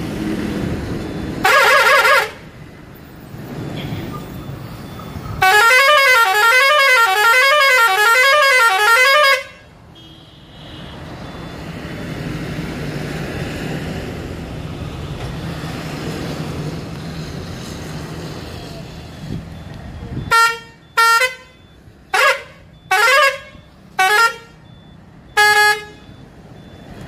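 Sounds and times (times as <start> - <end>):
warbling musical truck horn: 1.4 - 2.4, 5.4 - 10.9, 20.3 - 24.6, 25.4 - 26.0.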